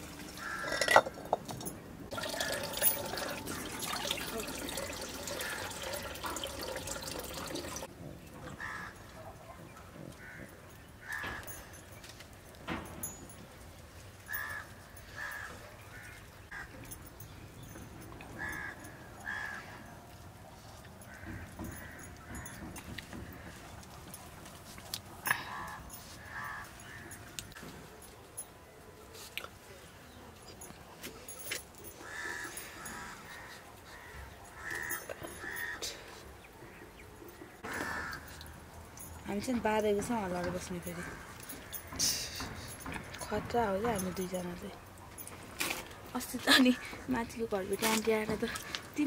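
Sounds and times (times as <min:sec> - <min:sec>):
bird cawing: 0:00.4 - 0:01.0, 0:08.6 - 0:09.0, 0:32.0 - 0:36.1, 0:37.6 - 0:38.6.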